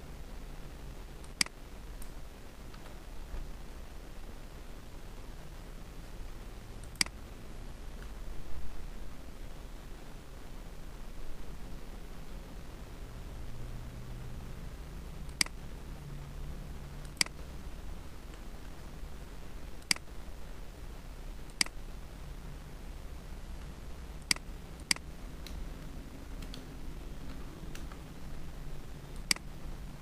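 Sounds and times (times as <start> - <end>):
steady low hum: 0.0 - 30.0
computer mouse clicking: 1.2 - 2.1, 6.8 - 7.2, 15.3 - 15.6, 17.0 - 17.4, 19.8 - 20.1, 21.5 - 21.8, 24.2 - 25.6, 26.4 - 28.0, 29.2 - 29.5.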